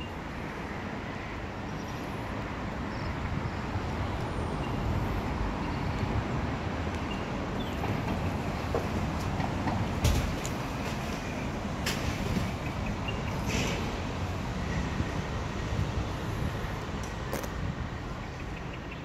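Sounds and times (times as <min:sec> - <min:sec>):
low rumbling traffic noise: 0:00.0 - 0:19.0.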